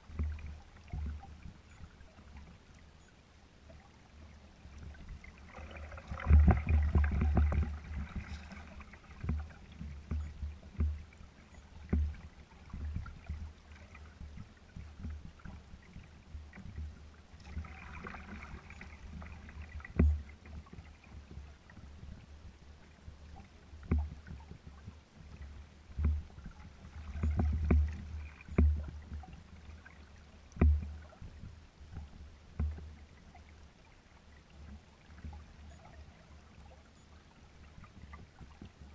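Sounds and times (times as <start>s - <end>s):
waves slapping against kayak hull: 4.8s - 21.9s, 23.8s - 33.0s.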